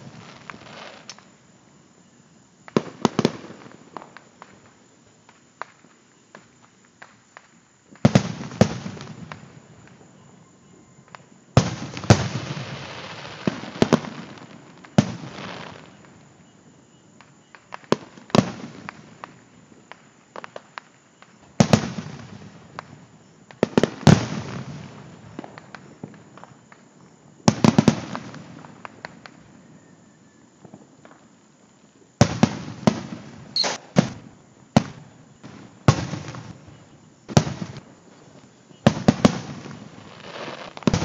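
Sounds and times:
firework bangs with echo: 32.2 - 34.2.

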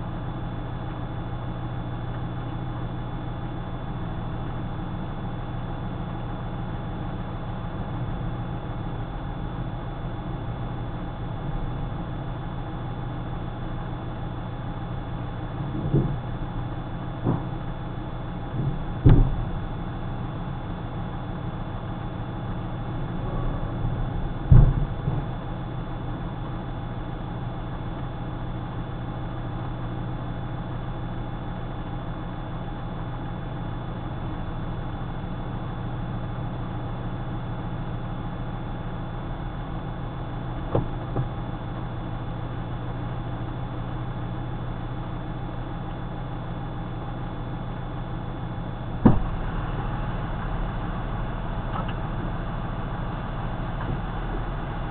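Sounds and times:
vehicle engine idling: 0.0 - 54.9
dull thumps: 15.6 - 16.4, 17.2 - 17.7, 18.6 - 19.6, 24.4 - 25.4, 40.6 - 41.4, 49.0 - 49.5.

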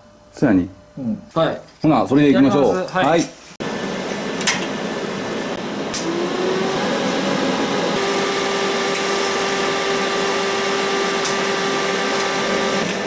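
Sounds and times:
welder hissing: 3.6 - 13.0
welder humming: 3.6 - 13.0.

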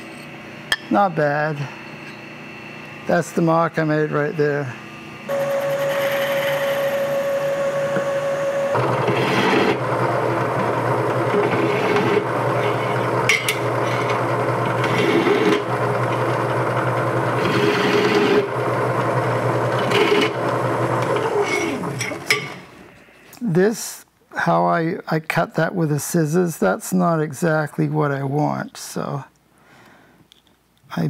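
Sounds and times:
milling machine whine: 0.0 - 23.2
drill press running: 3.6 - 23.1.

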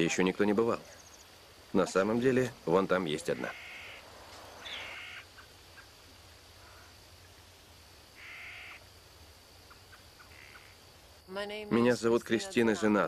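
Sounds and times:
bird calling: 3.1 - 7.5, 8.1 - 8.9, 9.6 - 10.8.

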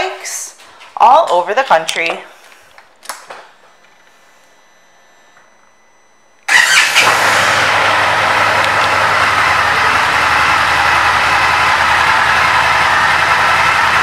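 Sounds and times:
motorcycle engine idling: 6.5 - 14.0.

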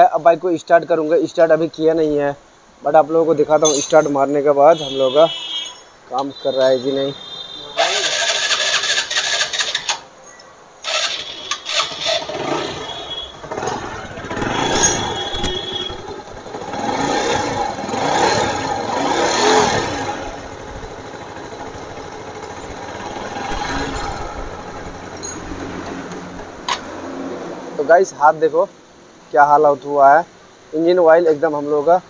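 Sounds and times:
motorcycle engine starting and revving: 7.8 - 10.0, 10.8 - 27.6.

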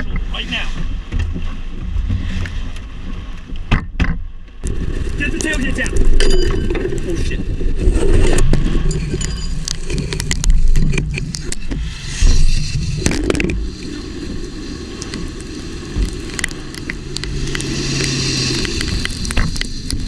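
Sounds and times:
wind rumble on microphone: 0.0 - 20.0
car engine running: 13.0 - 20.0.

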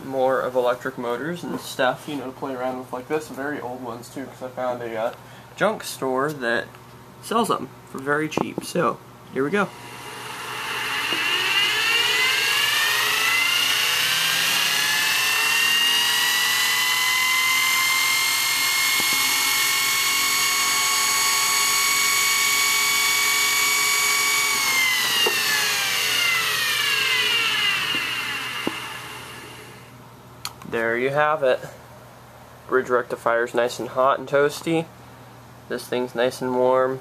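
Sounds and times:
dynamotor whining: 9.6 - 29.9.

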